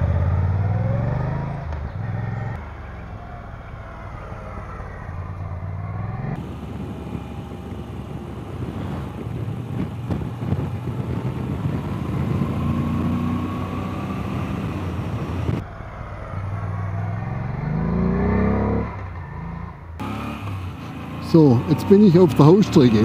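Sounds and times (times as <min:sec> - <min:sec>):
motorcycle engine accelerating: 0:00.0 - 0:23.0
wind noise: 0:03.0 - 0:19.4.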